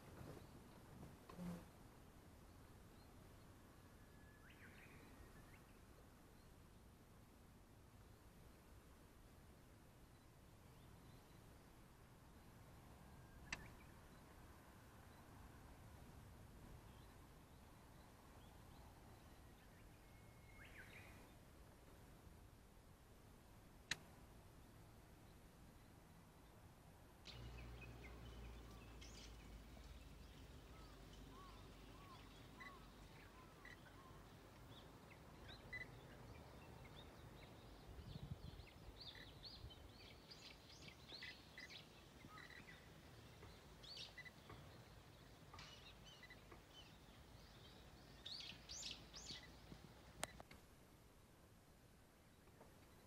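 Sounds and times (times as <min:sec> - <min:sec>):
faint outdoor background noise: 0:00.0 - 0:53.0
birds chirping and calling: 0:27.3 - 0:49.6.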